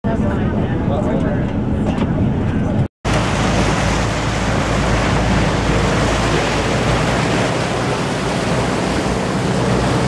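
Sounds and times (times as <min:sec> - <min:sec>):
boat engine humming: 0:00.2 - 0:10.0
churning water rushing: 0:03.0 - 0:10.0.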